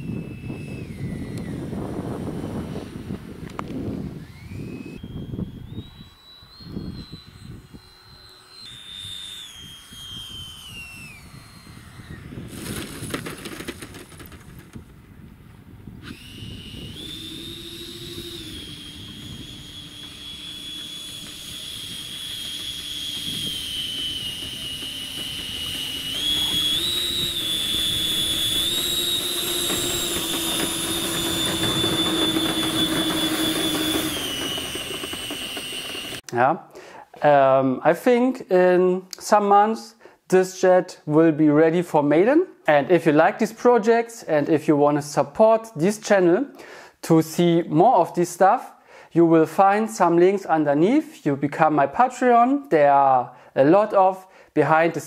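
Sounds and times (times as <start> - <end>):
electric fan whining: 0.0 - 36.4.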